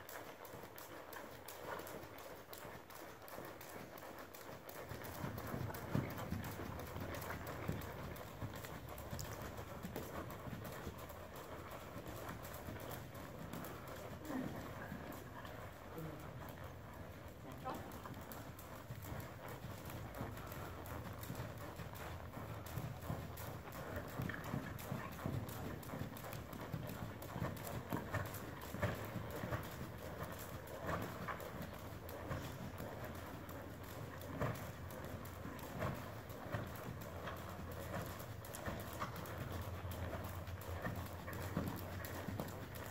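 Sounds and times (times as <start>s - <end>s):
horse hoofbeats trotting on sand: 0.0s - 42.9s.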